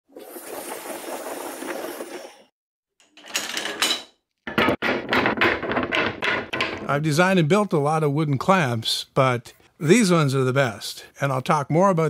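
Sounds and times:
wooden clamps clattering on workbench: 3.0 - 7.0
sharp wooden knocks: 4.5 - 7.0.

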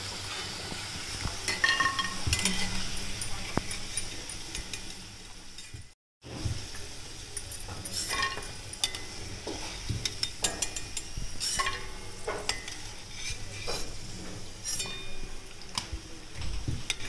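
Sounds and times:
hot oil sizzling: 0.0 - 17.0
metal spoon scraping and clinking pan: 1.5 - 5.0, 7.3 - 14.0, 14.6 - 15.4.

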